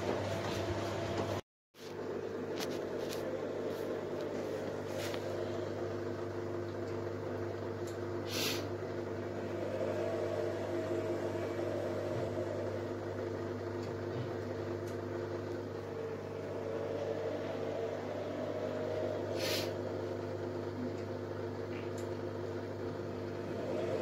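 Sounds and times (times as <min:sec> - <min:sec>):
washing machine spinning: 0:00.0 - 0:24.0
brief hiss: 0:19.4 - 0:19.8.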